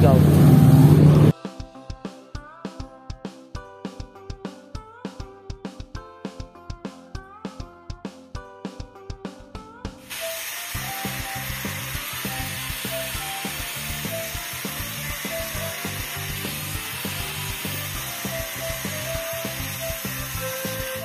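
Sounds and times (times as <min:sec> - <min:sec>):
background music with steady beat: 0:01.3 - 0:21.0
power tool hissing on steel: 0:10.1 - 0:21.0.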